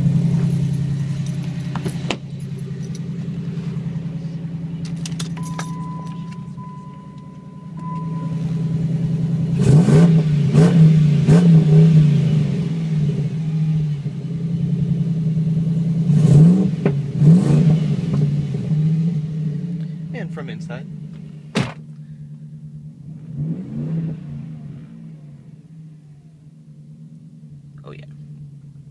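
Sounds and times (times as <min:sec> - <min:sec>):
engine revving in blips: 0:00.0 - 0:22.1, 0:22.9 - 0:26.5
car engine idling: 0:00.0 - 0:28.9
electronic chime: 0:05.4 - 0:08.7.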